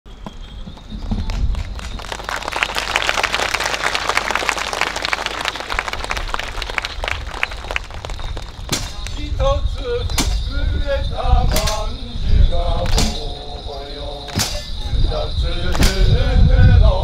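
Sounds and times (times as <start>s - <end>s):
audience applauding: 1.2s - 8.8s.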